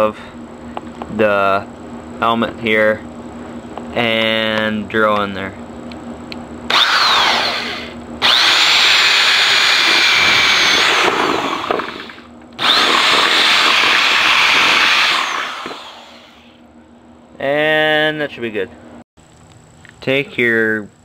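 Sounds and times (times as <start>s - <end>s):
electric drill boring: 6.7s - 16.6s.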